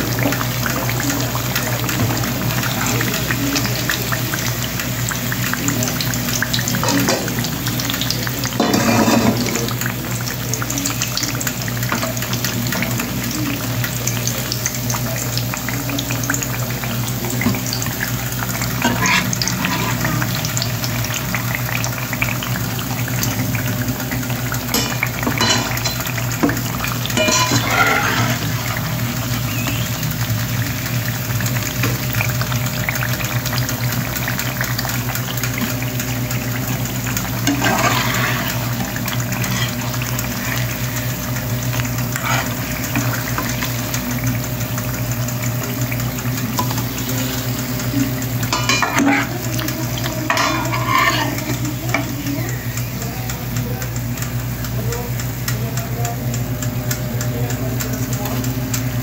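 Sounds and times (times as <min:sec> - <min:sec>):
slices sizzling in oil: 0:00.0 - 0:59.0
metal spatula scraping pan: 0:18.8 - 0:20.2, 0:27.2 - 0:28.6, 0:37.4 - 0:38.8, 0:42.1 - 0:43.2, 0:50.3 - 0:51.6.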